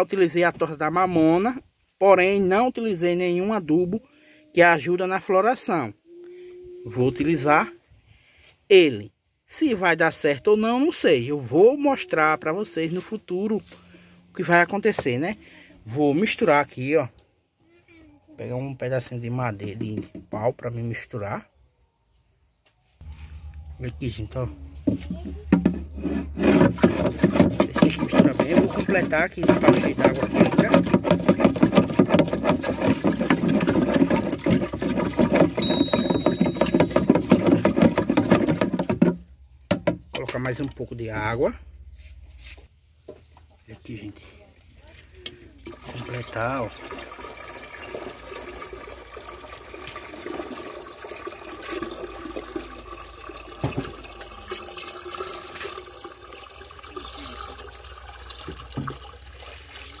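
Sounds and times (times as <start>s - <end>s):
water sloshing and splashing: 24.8s - 39.3s, 45.6s - 60.0s
high electronic beep: 35.6s - 36.9s.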